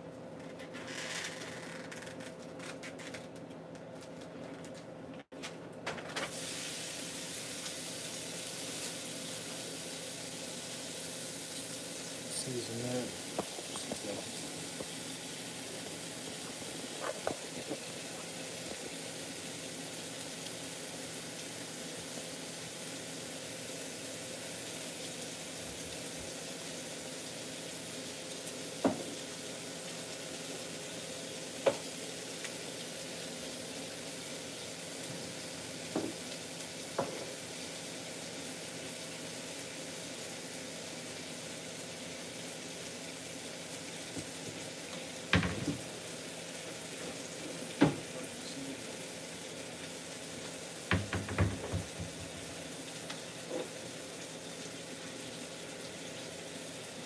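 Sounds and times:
meat sizzling in a pan: 0:06.3 - 0:57.0
cupboard and drawer knocks: 0:45.3 - 0:45.8, 0:50.9 - 0:52.4.

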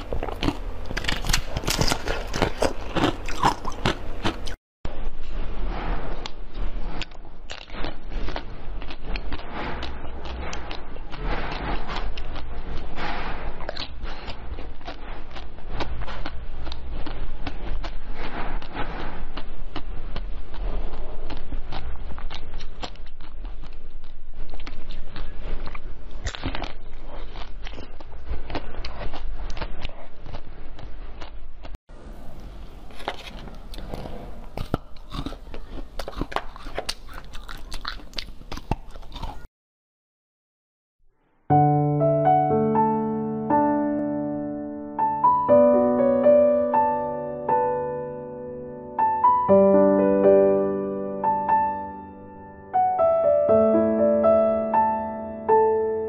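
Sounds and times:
chewing crunchy ice balls: 0:00.0 - 0:04.6, 0:06.2 - 0:31.8, 0:32.5 - 0:39.5.

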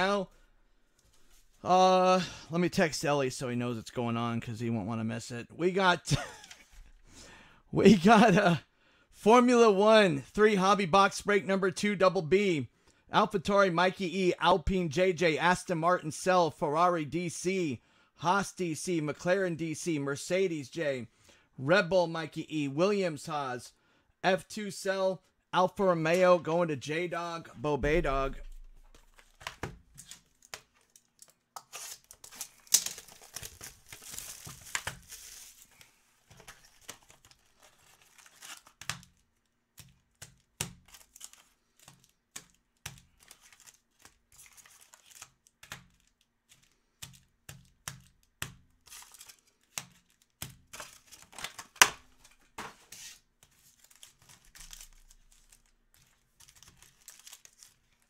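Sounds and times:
foil wrapping tearing and crinkling: 0:30.0 - 0:39.2, 0:40.8 - 0:42.1, 0:43.0 - 0:46.2, 0:48.8 - 0:51.6, 0:53.7 - 0:58.0.

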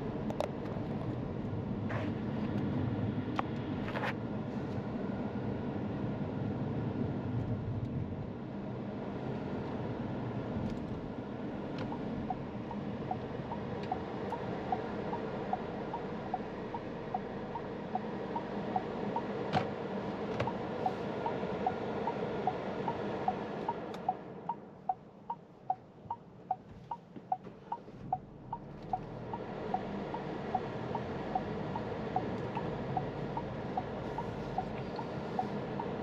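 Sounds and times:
car cabin noise: 0:10.7 - 0:36.0
turn signal ticking: 0:11.6 - 0:36.0.

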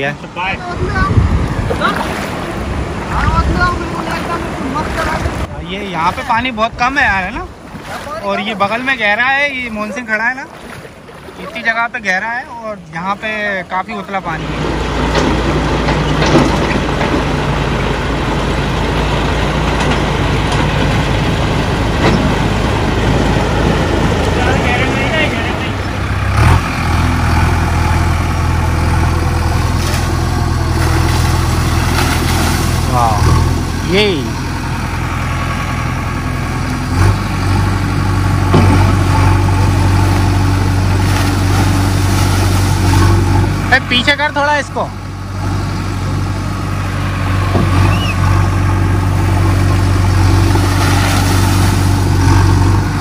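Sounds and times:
water splashing and churning: 0:00.0 - 0:53.0
tractor diesel engine running: 0:02.4 - 0:53.0
water splashing down: 0:29.6 - 0:33.6, 0:50.2 - 0:52.3.

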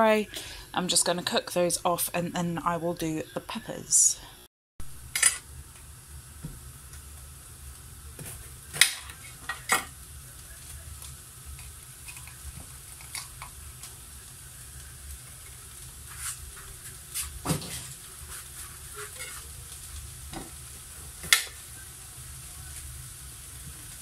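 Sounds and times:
onions sizzling in a frying pan: 0:04.8 - 0:24.0.

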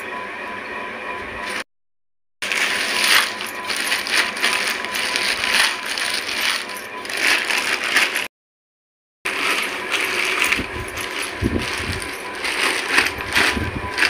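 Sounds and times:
plastic bag crinkling: 0:02.4 - 0:08.3, 0:09.3 - 0:14.0.

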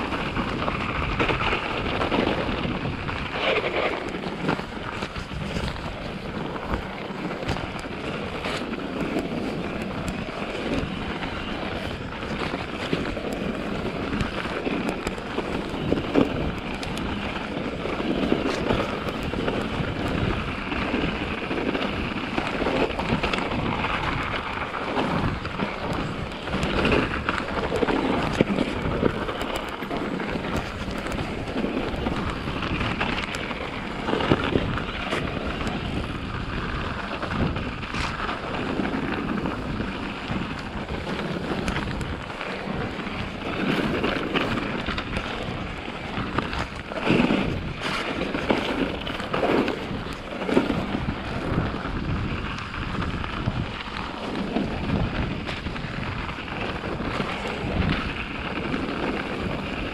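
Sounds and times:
tyres rolling over snow: 0:00.0 - 0:59.9
wind buffeting microphone: 0:00.0 - 0:59.9.

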